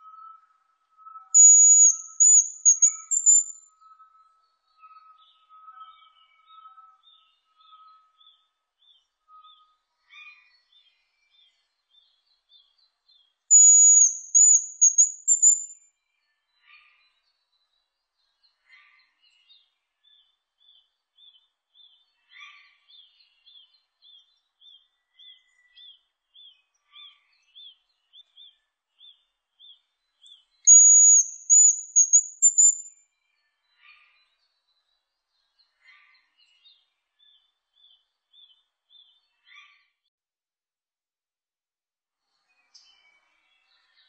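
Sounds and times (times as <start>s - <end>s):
grouse whistled song: 1.1s - 4.1s, 13.5s - 15.8s, 30.7s - 32.9s.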